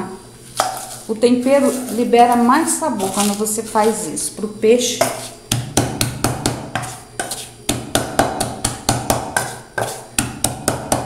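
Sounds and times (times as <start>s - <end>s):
wooden pestle pounding in metal pot: 5.0s - 11.0s.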